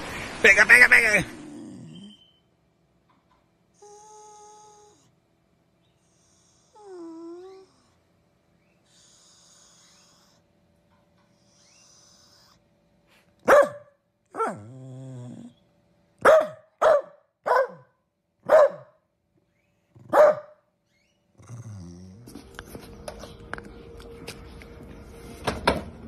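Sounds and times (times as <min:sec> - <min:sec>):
dog grumbling low: 0:01.3 - 0:02.2, 0:14.5 - 0:15.6, 0:21.4 - 0:22.4
dog barking: 0:13.4 - 0:14.7, 0:16.2 - 0:19.0, 0:20.1 - 0:20.6.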